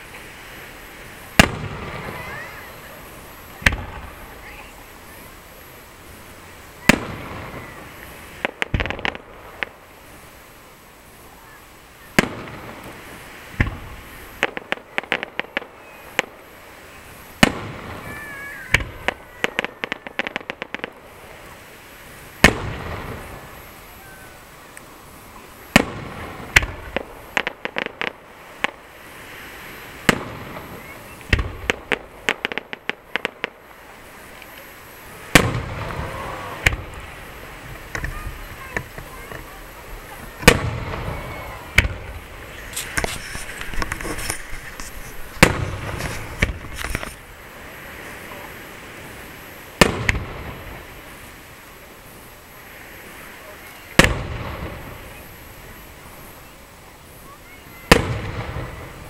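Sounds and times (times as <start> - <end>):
firework shells bursting: 1.0 - 4.5, 6.8 - 9.8, 25.6 - 33.6, 34.2 - 48.5, 53.9 - 55.4
crackling firework pops: 1.3 - 4.7, 6.8 - 9.8, 12.0 - 16.4, 17.3 - 21.6, 22.3 - 23.8, 24.7 - 48.6, 49.7 - 52.2, 53.5 - 56.4, 57.7 - 59.0.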